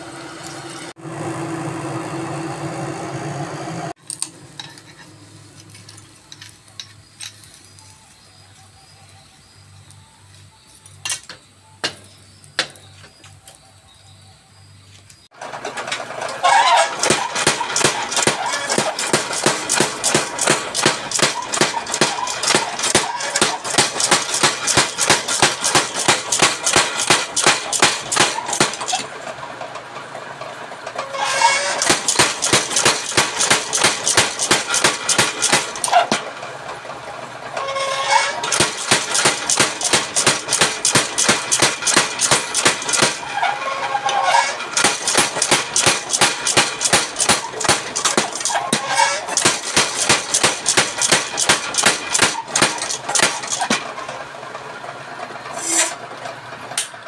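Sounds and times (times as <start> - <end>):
power hammer pounding hot steel: 15.7 - 29.2, 31.0 - 36.7, 37.5 - 54.2.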